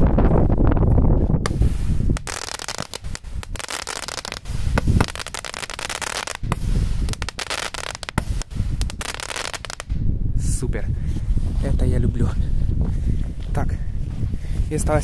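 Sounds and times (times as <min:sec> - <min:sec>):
firework sharp pops: 0:01.4 - 0:10.0
firework crackling and hissing: 0:01.5 - 0:09.9.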